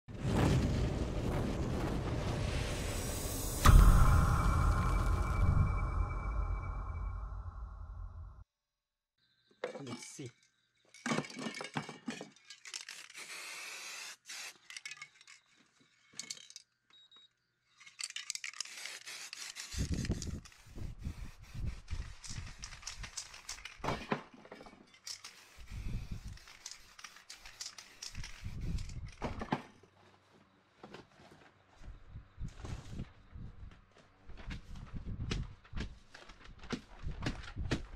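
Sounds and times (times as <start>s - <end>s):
low thumps: 0.6s - 8.4s
spray paint can hissing: 13.2s - 14.6s, 18.6s - 23.6s, 25.1s - 29.0s.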